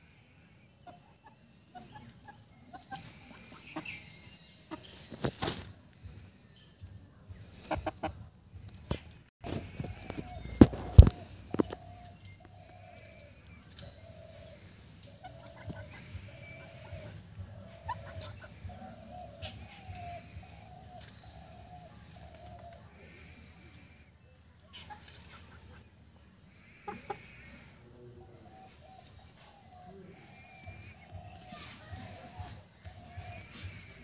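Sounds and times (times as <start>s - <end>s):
chicken clucking: 0.8s - 5.7s, 7.6s - 8.3s, 9.5s - 14.2s, 15.0s - 22.8s, 24.5s - 26.0s, 26.8s - 27.4s.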